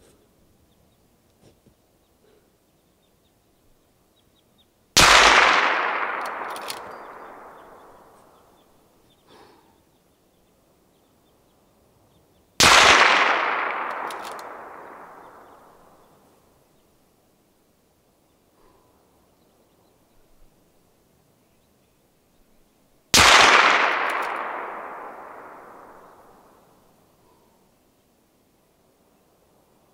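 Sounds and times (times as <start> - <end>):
rifle shots with long echo: 5.0 - 9.6, 12.6 - 16.5, 23.1 - 27.5.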